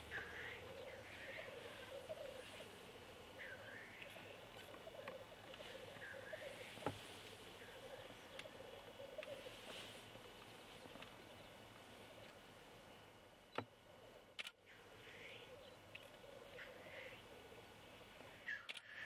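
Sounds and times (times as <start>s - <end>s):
sharp clicks: 14.3s - 14.6s, 18.6s - 19.0s.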